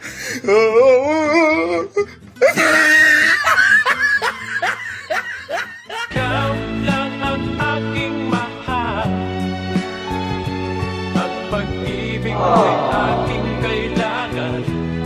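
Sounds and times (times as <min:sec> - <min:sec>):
background music: 0:01.8 - 0:15.0
person laughing heartily: 0:02.0 - 0:06.1, 0:12.4 - 0:14.0.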